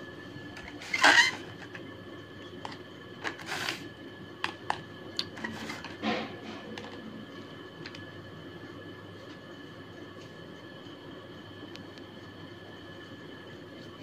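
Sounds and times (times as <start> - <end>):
toy train carriages on tiled floor: 0.6 - 1.8, 2.6 - 3.9, 5.4 - 6.0
rustling scrape: 3.2 - 3.9, 5.4 - 6.6.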